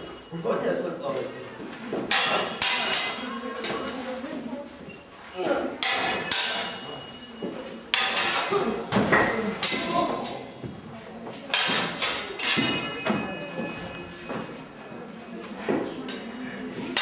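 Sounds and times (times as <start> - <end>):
swords clashing with metallic ring: 2.1 - 4.0, 5.8 - 7.2, 7.9 - 10.5, 11.5 - 13.7.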